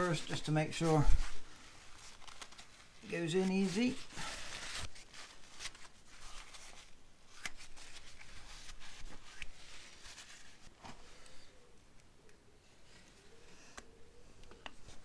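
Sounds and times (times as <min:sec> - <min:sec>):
paper towel scraping metal: 0:00.0 - 0:05.7.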